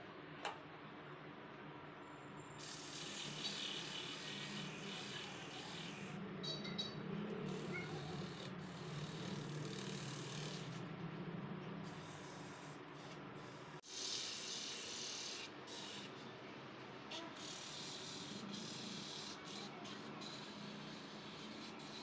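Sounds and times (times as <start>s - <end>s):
motor shaft rubbing whir: 2.6s - 13.8s.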